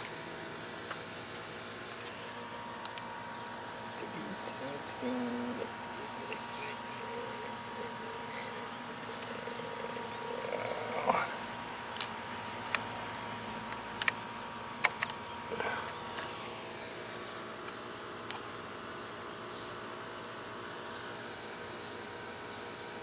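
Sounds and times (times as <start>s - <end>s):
insects trilling: 0.0s - 23.0s
sharp clicks: 14.8s - 15.2s.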